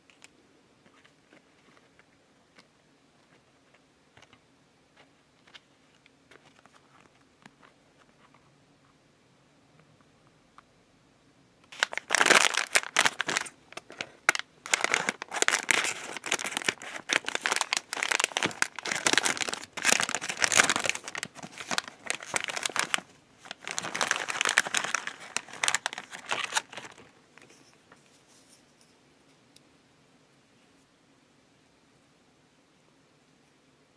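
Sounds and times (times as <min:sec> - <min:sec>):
plastic wrapper crinkling: 0:11.7 - 0:27.7.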